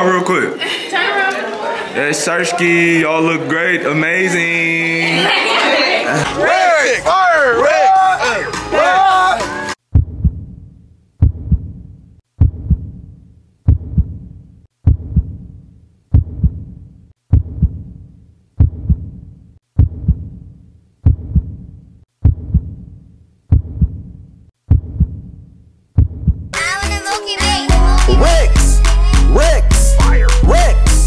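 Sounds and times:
heartbeat low double thump: 9.9 - 10.6, 11.2 - 11.8, 12.4 - 13.0, 13.7 - 14.2, 14.8 - 15.4, 16.1 - 16.7, 17.3 - 17.9, 18.6 - 19.2, 19.8 - 20.4, 21.0 - 21.6, 22.2 - 22.8, 23.5 - 24.1, 24.7 - 25.3, 26.0 - 26.5.

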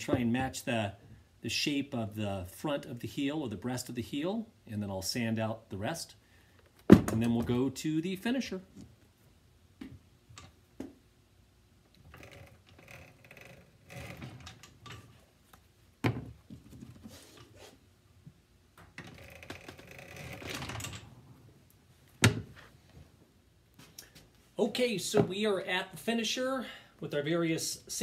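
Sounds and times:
rubber scraping and rustling: 12.0 - 17.9.

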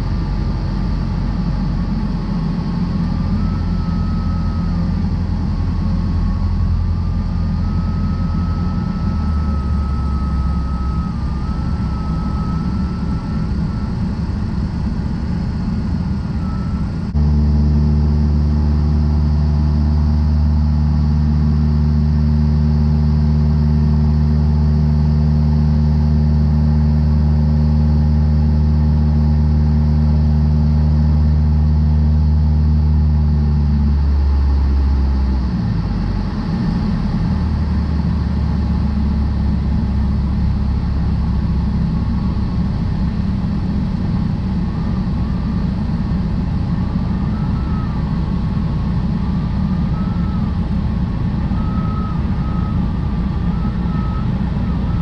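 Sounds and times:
light aircraft engine and propeller: 0.0 - 55.0
faint wavering high tone: 0.1 - 17.4, 46.9 - 48.5.

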